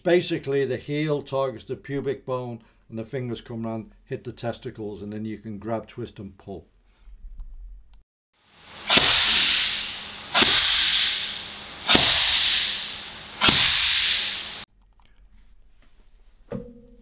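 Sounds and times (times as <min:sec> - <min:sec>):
loud hiss: 0:08.4 - 0:14.6
hand slaps on strike shield: 0:08.9 - 0:14.6.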